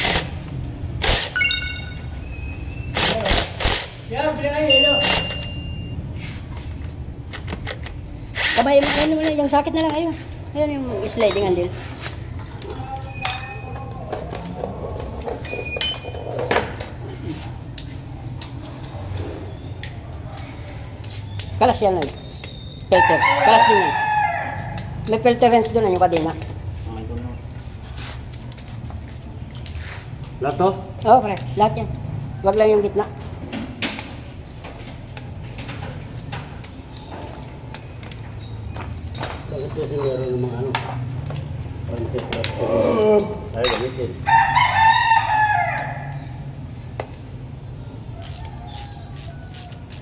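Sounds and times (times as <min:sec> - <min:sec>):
metal tools clinking and knocking: 0:01.4 - 0:02.2, 0:10.7 - 0:19.2, 0:35.6 - 0:42.4, 0:43.0 - 0:44.3.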